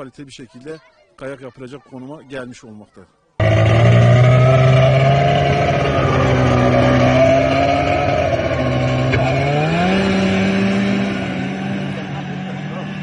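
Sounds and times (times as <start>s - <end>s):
snowmobile engine running: 3.4s - 13.0s.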